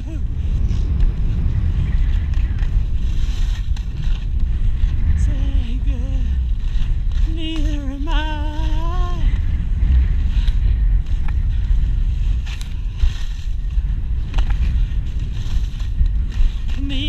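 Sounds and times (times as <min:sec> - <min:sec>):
wind buffeting microphone: 0:00.0 - 0:17.0
snow hissing under skis: 0:14.6 - 0:17.0.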